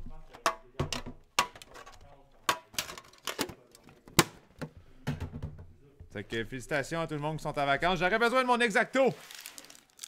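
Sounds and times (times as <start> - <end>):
cards and foil pack handled: 9.2 - 10.0.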